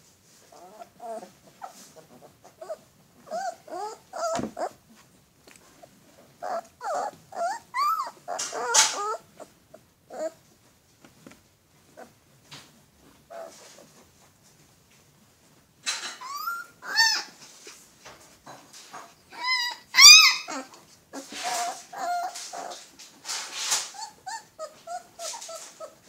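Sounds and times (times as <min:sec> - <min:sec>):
puppies whining and yipping: 0:00.5 - 0:04.8, 0:06.2 - 0:10.4, 0:16.0 - 0:17.4, 0:19.2 - 0:23.0, 0:23.6 - 0:26.0
puppies growling: 0:00.5 - 0:04.9, 0:05.7 - 0:10.4, 0:19.3 - 0:26.0.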